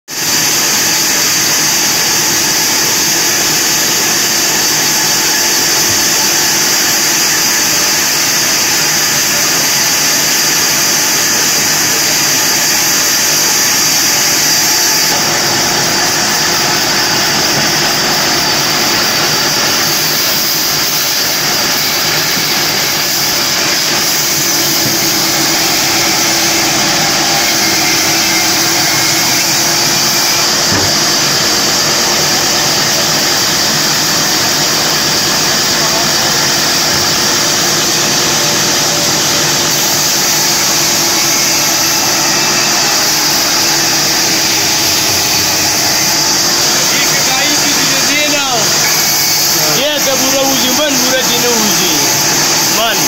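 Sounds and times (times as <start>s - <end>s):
band saw cutting log: 0.1s - 53.0s.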